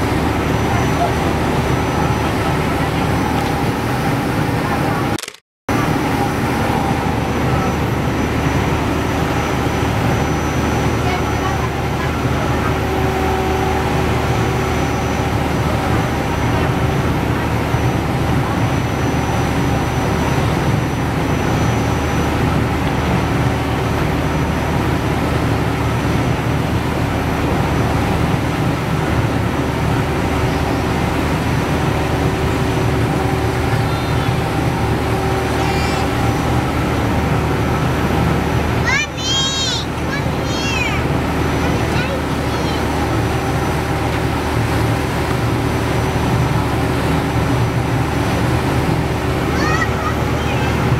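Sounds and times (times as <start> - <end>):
ferry engine drone: 0.0 - 50.9
rushing water from wake: 0.0 - 50.9.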